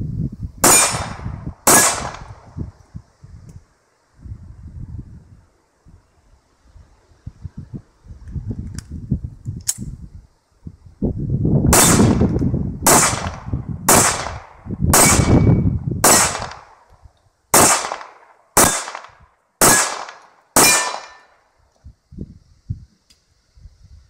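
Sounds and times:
wind rumble on microphone: 0.0s - 18.0s, 21.6s - 24.0s
pistol shots: 0.6s - 2.3s, 11.8s - 12.2s, 12.9s - 16.8s, 17.6s - 21.4s.

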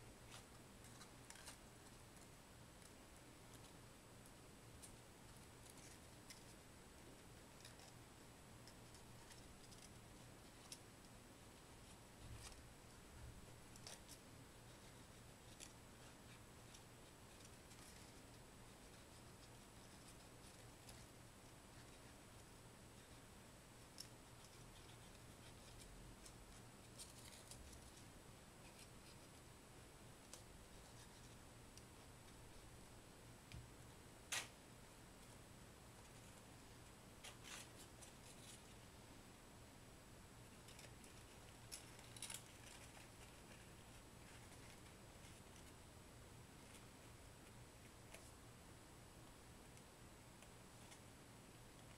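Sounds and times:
low hiss: 0.0s - 51.9s
paper crinkling and clicking: 13.6s - 23.2s, 23.8s - 29.4s, 40.6s - 45.8s
paper crinkling: 40.6s - 45.8s.

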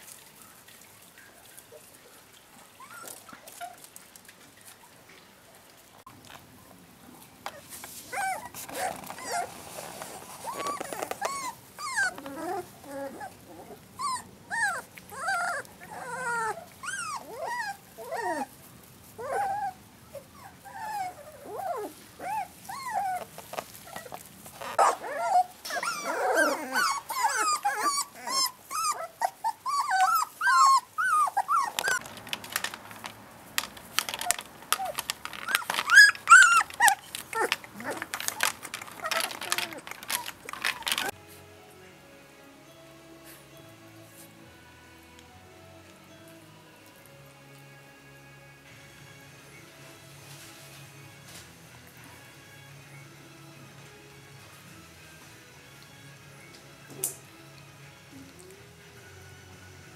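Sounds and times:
puppies whimpering and yipping: 2.6s - 4.0s, 7.5s - 33.0s, 34.0s - 41.2s.

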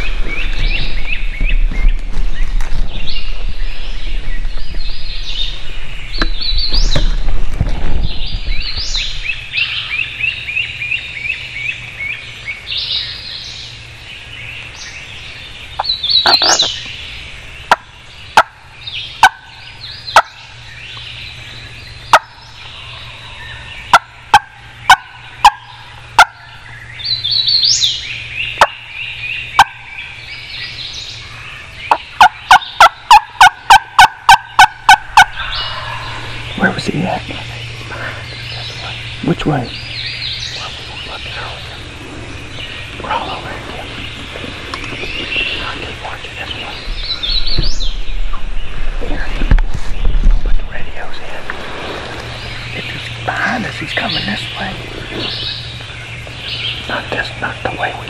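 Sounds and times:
hen turkey clucks and yelps: 15.8s - 16.8s, 17.7s - 18.6s, 19.2s - 19.5s, 20.1s - 20.4s, 22.1s - 22.4s, 23.0s - 26.6s, 28.6s - 28.8s, 29.5s - 29.8s, 31.9s - 36.3s
turkey gobbling: 15.8s - 16.8s, 17.7s - 18.6s, 19.2s - 19.5s, 20.1s - 20.4s, 22.1s - 22.4s, 23.0s - 26.6s, 28.6s - 28.9s, 29.5s - 29.8s, 31.9s - 36.8s.

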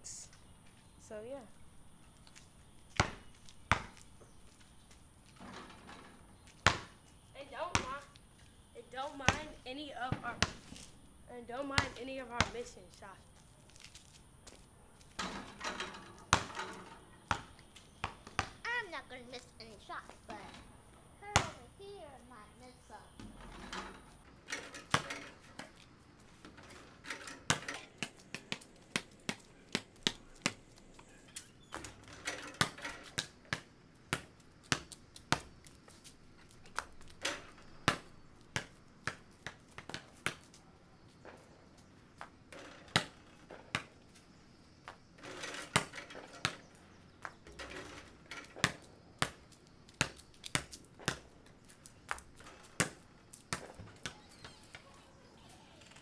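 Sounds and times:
ball hitting backboard and rim: 2.9s - 4.0s, 5.4s - 7.0s, 7.6s - 8.1s, 9.1s - 10.9s, 11.6s - 12.7s, 15.2s - 18.8s, 20.3s - 21.6s, 23.2s - 35.6s, 36.3s - 40.6s, 41.2s - 44.2s, 44.9s - 54.9s
basketball bouncing on concrete: 2.9s - 8.2s, 9.0s - 10.9s, 11.5s - 12.8s, 14.5s - 18.9s, 21.2s - 21.7s, 23.2s - 56.0s.

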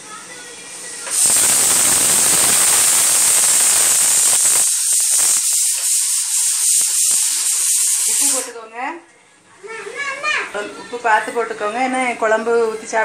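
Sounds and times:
loud steady hiss: 0.6s - 8.6s.

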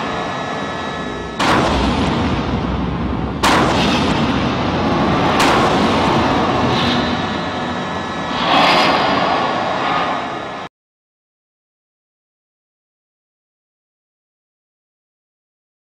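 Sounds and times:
explosion blasts with echoing rumble: 1.3s - 10.7s.

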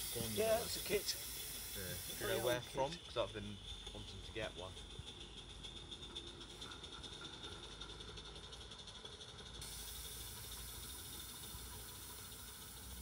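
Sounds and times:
steady hiss: 0.0s - 4.7s, 9.6s - 13.0s
thin high whine: 0.0s - 4.7s
model train wagons rolling: 0.0s - 13.0s.

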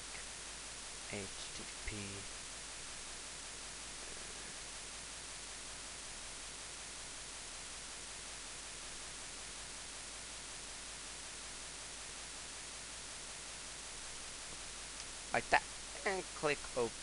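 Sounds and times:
microphone static hiss: 0.0s - 17.0s.

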